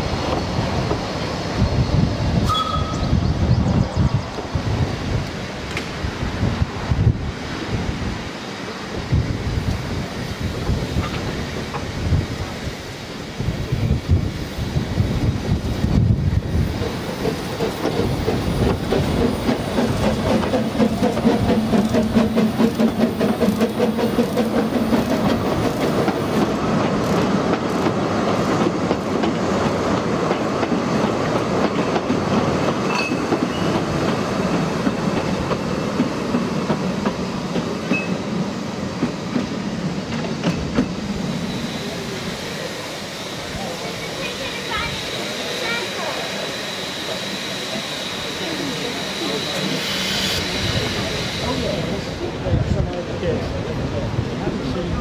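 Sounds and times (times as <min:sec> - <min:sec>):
train wheels clattering over rail joints: 0:16.6 - 0:41.1
steam locomotive exhaust: 0:32.8 - 0:52.9.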